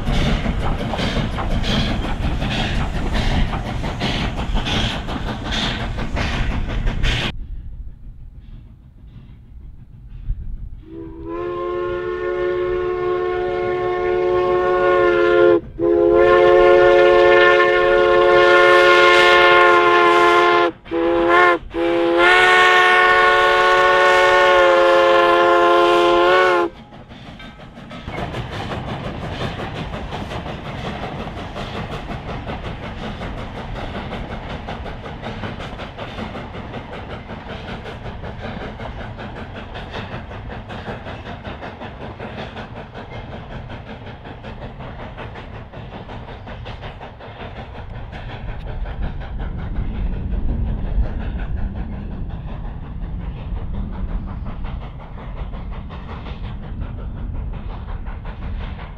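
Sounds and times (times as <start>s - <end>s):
steam exhaust chuffing: 0.0s - 58.9s
wheels clacking on rails: 0.0s - 58.9s
steam whistle blasts: 10.8s - 26.8s.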